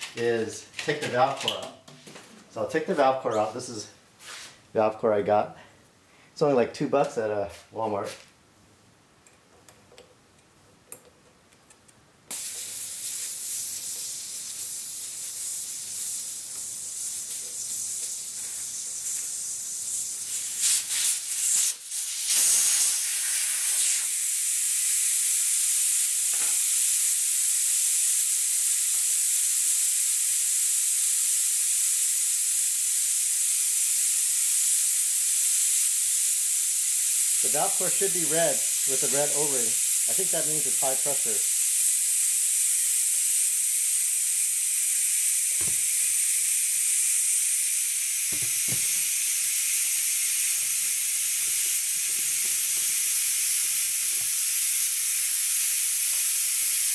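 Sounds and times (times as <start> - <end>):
air hissing out of tire valve: 12.3 - 56.9.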